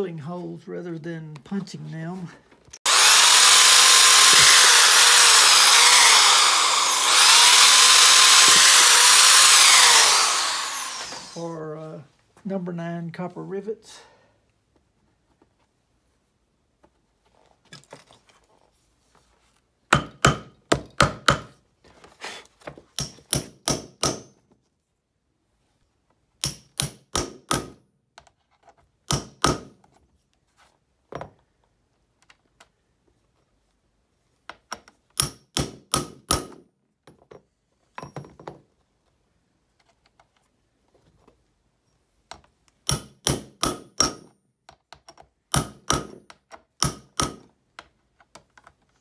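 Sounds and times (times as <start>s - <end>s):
hammer striking metal: 42.9s - 44.3s, 46.8s - 47.5s.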